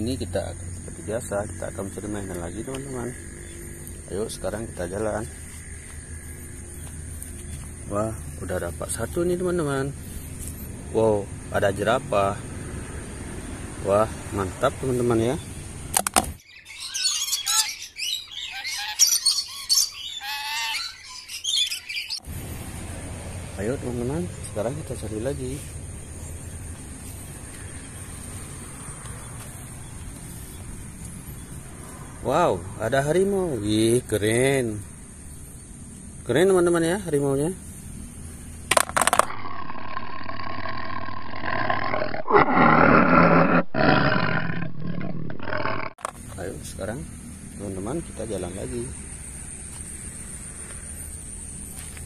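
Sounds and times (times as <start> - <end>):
birds chirping and calling: 0.0 - 9.2, 16.4 - 22.2
steady rumble: 0.0 - 15.9
tiger roar: 39.4 - 46.0.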